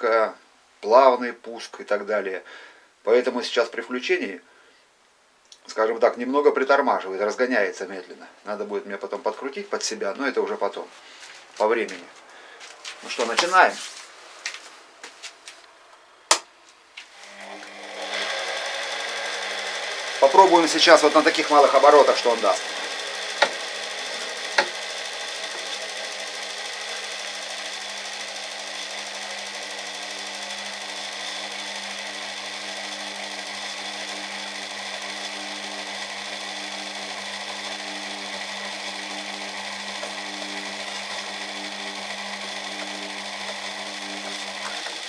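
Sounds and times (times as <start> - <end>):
drill press motor hum: 17.2 - 45.0.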